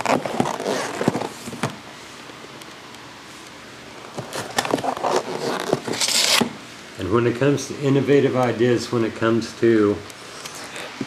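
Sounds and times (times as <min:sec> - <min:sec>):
packaging rustling and scraping: 0:00.0 - 0:01.8, 0:04.0 - 0:06.5.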